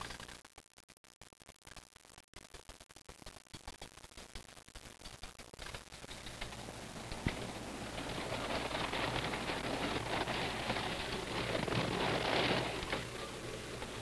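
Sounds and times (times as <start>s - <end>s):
roller coaster rattling on track: 6.1s - 14.0s.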